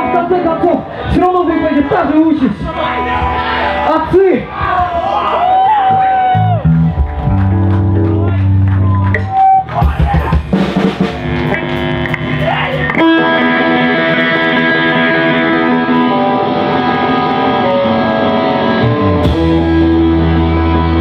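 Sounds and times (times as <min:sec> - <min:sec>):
live rock band playing: 0:00.0 - 0:21.0
drum hits: 0:09.8 - 0:13.0.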